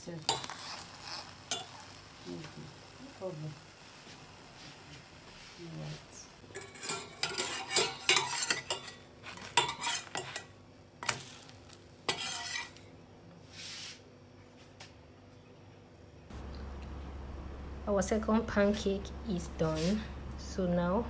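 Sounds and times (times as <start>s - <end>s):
spatula scraping frying pan: 0.3s - 2.0s, 6.4s - 12.9s.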